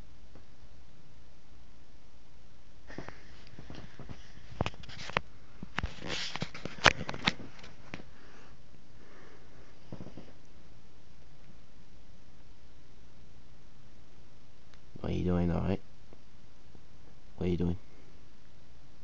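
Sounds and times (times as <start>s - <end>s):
fabric rustling: 2.9s - 8.1s.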